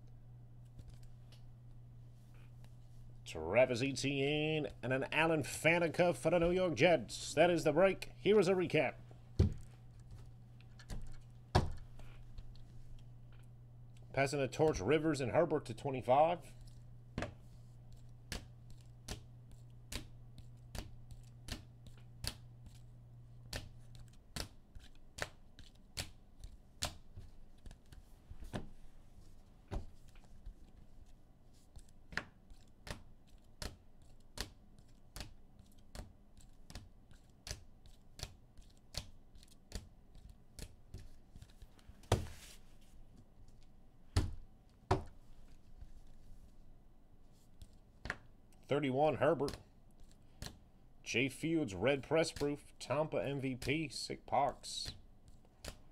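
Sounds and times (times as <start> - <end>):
cards clicking on a table: 31.8 - 42.4.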